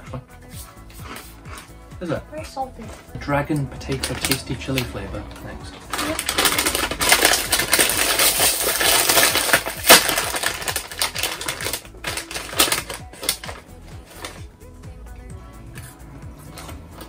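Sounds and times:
crisp packet crinkling: 3.8 - 4.9, 5.9 - 14.4
sharp loud crackle: 5.9 - 11.7.

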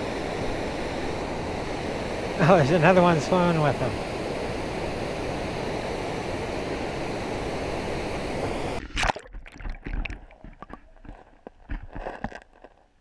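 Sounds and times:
water rushing over weir: 0.0 - 11.8
water splash: 8.8 - 12.4
underwater knocks and gurgles: 8.8 - 12.6.

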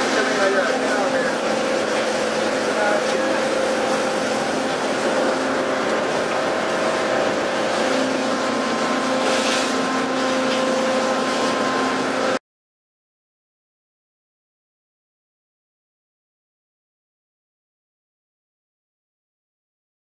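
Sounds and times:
boat engine hum: 0.0 - 12.4
wind and waves rushing: 0.0 - 12.4.

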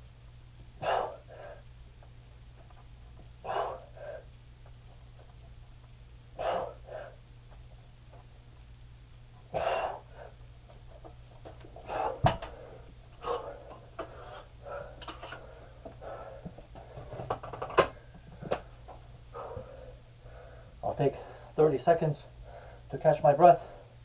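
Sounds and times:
steady low hum: 0.0 - 24.0
man breathing hard: 0.8 - 1.8, 3.4 - 4.4, 6.4 - 7.2, 9.5 - 10.4, 11.8 - 17.3, 19.3 - 21.6, 22.3 - 22.9.

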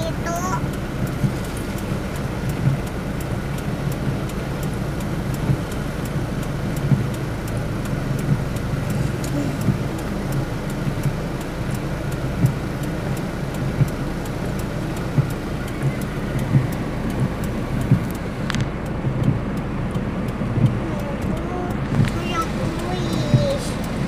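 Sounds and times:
car engine rumble: 0.0 - 24.0
tyres on wet road: 0.0 - 24.0.

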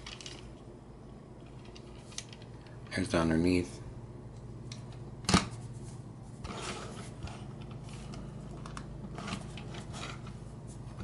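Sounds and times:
plastic rubbing and scraping: 5.7 - 11.0.

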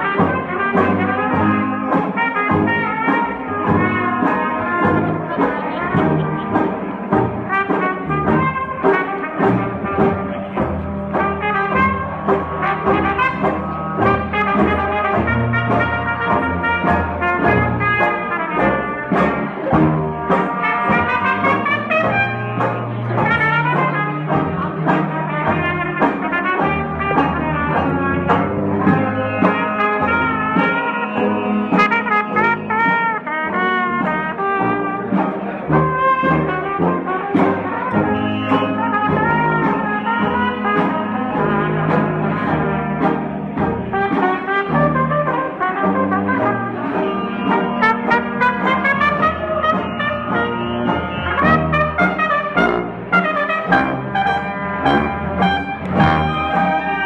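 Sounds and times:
banjo rhythm: 0.0 - 57.0
jazz band playing: 0.0 - 57.0
trombone: 0.0 - 57.0
trumpet: 0.0 - 57.0
sousaphone bass: 46.8 - 57.0
bass drum: 52.6 - 57.0.

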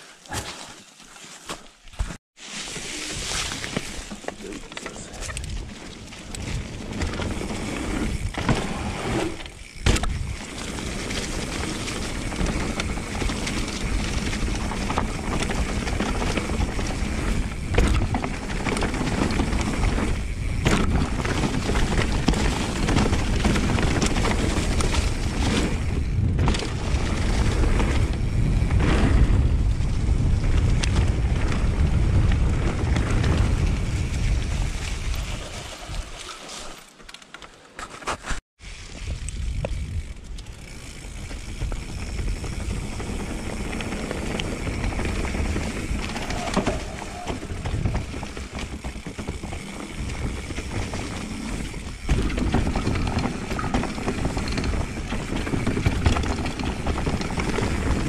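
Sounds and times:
bike tyres rolling over leaves: 0.0 - 37.2, 38.2 - 58.0
bike knocking over bumps: 6.6 - 29.5, 41.4 - 58.0.

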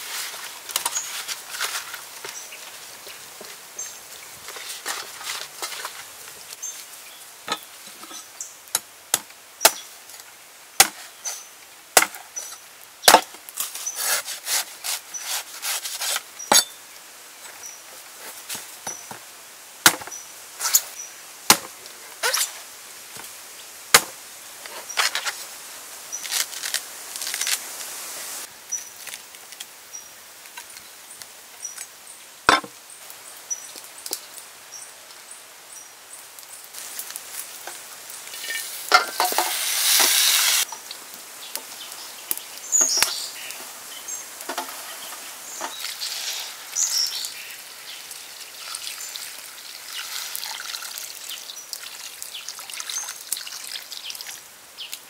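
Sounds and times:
knife chopping coconut husk: 14.0 - 16.7.

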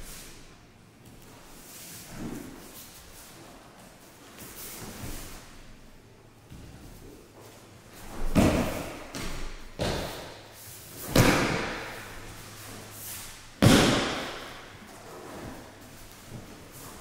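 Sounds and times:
bodies slapping mats: 6.4 - 17.0.

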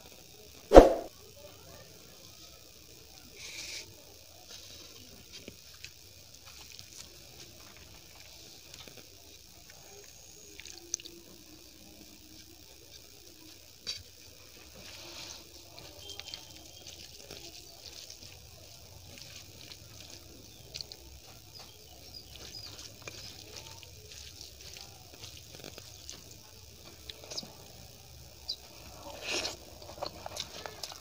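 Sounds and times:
wet squishing of fingers mixing food: 15.6 - 27.5, 29.4 - 31.0.

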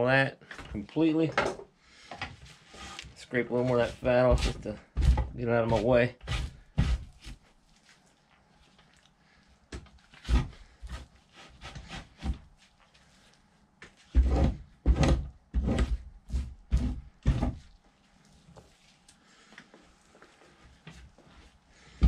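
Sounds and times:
knife scraping fat from hide: 5.7 - 7.5, 10.0 - 12.4.

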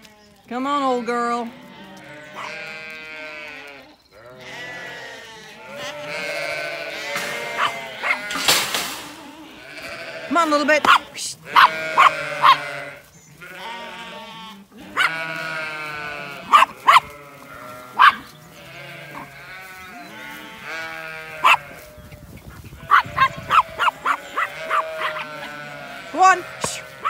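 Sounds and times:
sheep bleating: 0.0 - 27.0.

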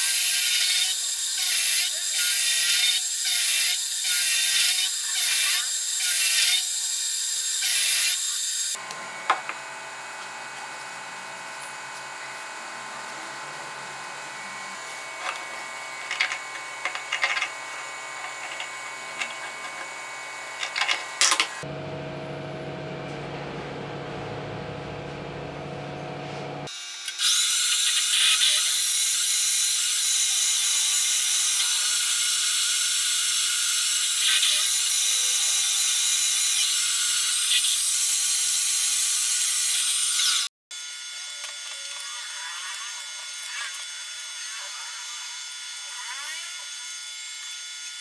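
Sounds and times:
milling machine cutting metal: 0.0 - 10.4, 11.8 - 26.0, 26.7 - 48.0
low machine hum: 21.6 - 26.7.

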